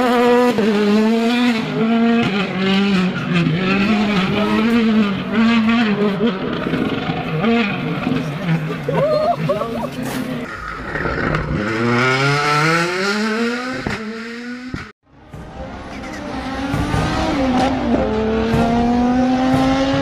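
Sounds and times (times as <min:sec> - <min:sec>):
car engine accelerating hard: 0:00.0 - 0:08.9, 0:10.9 - 0:20.0
race car engine note climbing: 0:10.9 - 0:20.0.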